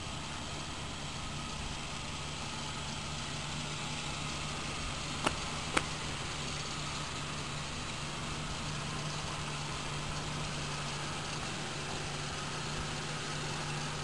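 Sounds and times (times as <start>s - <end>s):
vehicle engine idling: 0.0s - 14.0s
sharp clicks: 5.2s - 6.2s.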